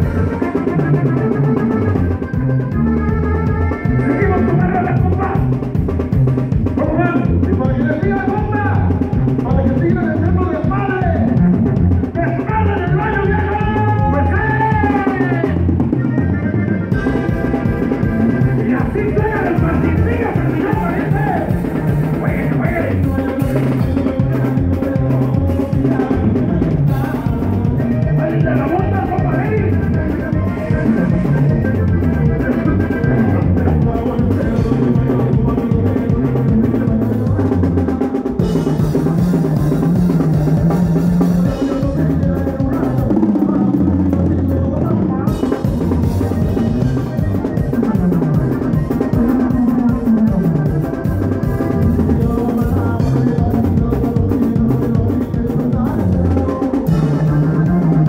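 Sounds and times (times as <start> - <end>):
bass line: 0.0 - 58.0
drum kit: 0.0 - 58.0
live band music: 0.0 - 58.0.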